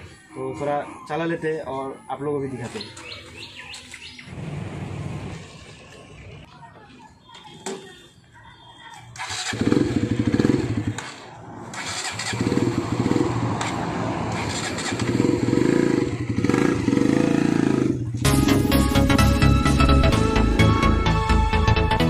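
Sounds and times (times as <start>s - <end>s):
motorcycle engine revving: 9.1s - 18.3s
motorcycle riding away: 9.2s - 18.3s.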